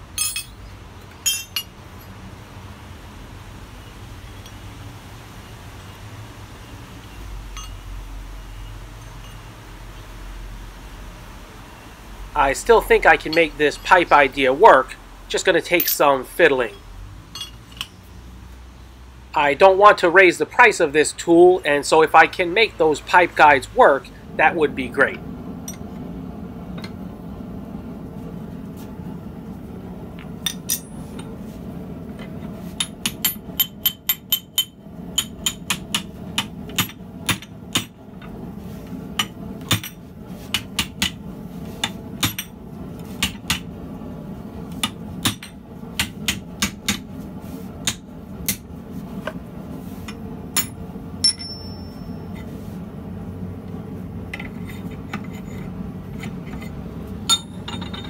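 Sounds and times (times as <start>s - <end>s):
steady low hum: 0.0s - 58.0s
hammer striking hot steel: 0.1s - 0.6s, 1.2s - 1.8s, 7.5s - 7.9s, 16.6s - 18.0s, 30.4s - 31.3s, 32.7s - 38.0s, 39.1s - 41.2s, 41.8s - 43.7s, 44.7s - 47.1s, 47.8s - 48.7s, 50.0s - 52.4s, 57.2s - 58.0s.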